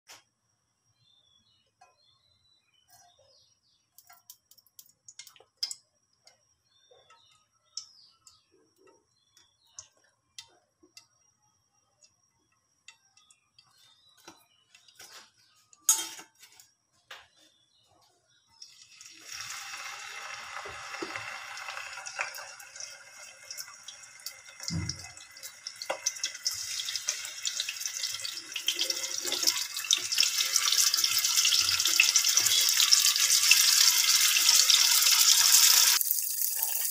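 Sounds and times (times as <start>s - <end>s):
small ticks: 3.9s - 15.0s
fish sizzling in hot oil: 18.6s - 36.9s.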